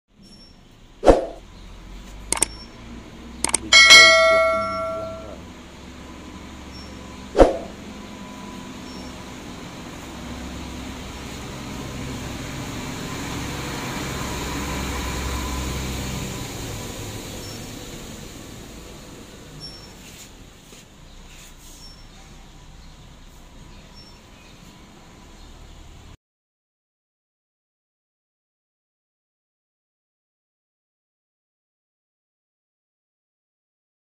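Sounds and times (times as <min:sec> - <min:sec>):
metal object clanging and ringing: 0:03.5 - 0:05.4
sharp knocks: 0:03.5 - 0:05.4.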